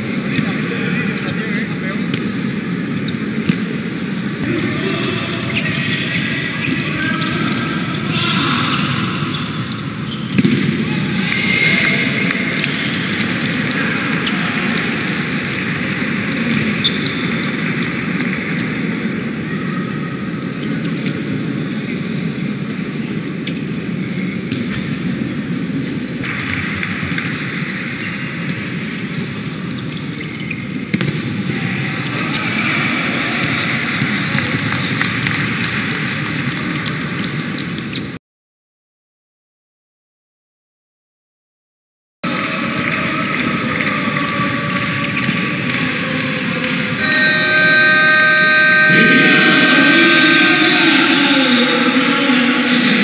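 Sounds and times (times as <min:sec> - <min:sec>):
crowd noise in sports hall: 0:00.0 - 0:38.2, 0:42.2 - 0:53.0
short high squeaks: 0:47.0 - 0:49.6.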